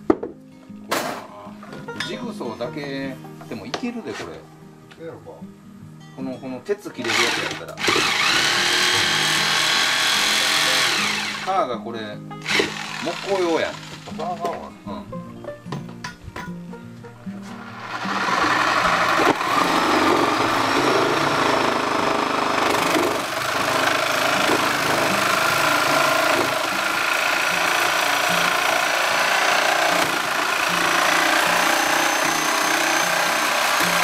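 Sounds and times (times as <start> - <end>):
background music: 0.0 - 34.0
electric saw cutting rubber: 7.0 - 11.6, 12.4 - 14.2, 17.4 - 34.0.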